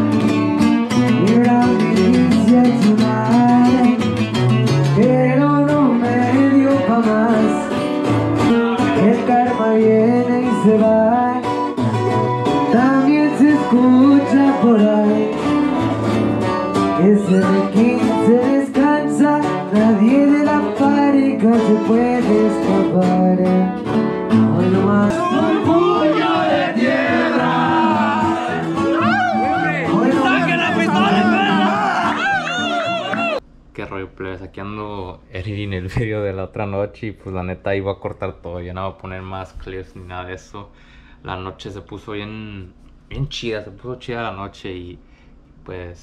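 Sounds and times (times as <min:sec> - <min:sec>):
acoustic guitars strummed and picked: 0:00.0 - 0:33.4
man singing into microphone: 0:01.1 - 0:04.0, 0:04.9 - 0:07.8, 0:08.5 - 0:11.5, 0:12.6 - 0:15.4, 0:17.0 - 0:23.8, 0:24.5 - 0:28.7, 0:29.8 - 0:33.3.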